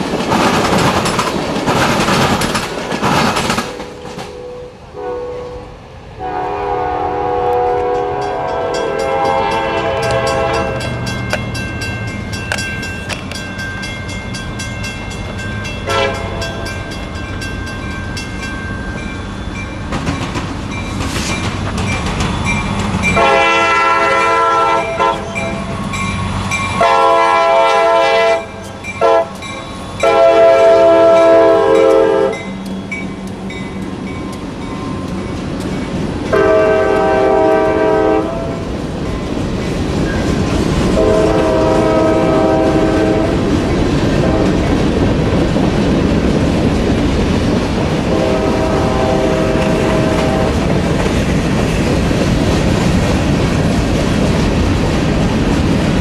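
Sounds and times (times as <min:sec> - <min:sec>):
train rumble: 0:00.0 - 0:56.0
locomotive air horn: 0:04.2 - 0:11.0, 0:15.8 - 0:16.7, 0:23.2 - 0:25.6, 0:26.8 - 0:29.4, 0:30.0 - 0:32.4, 0:36.3 - 0:38.7, 0:41.0 - 0:43.5, 0:44.2 - 0:44.6, 0:48.1 - 0:50.6.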